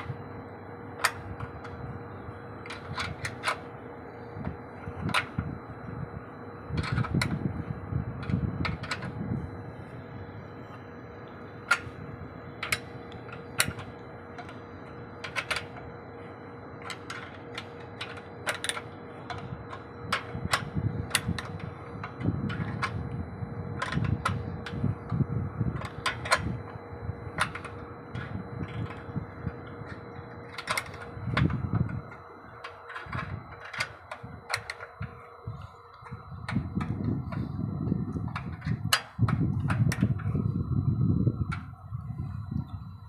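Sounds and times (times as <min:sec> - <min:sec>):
faint steady hum: 0:00.0 - 0:43.0
spanner clicking on metal bolts: 0:15.2 - 0:15.9, 0:29.9 - 0:35.1.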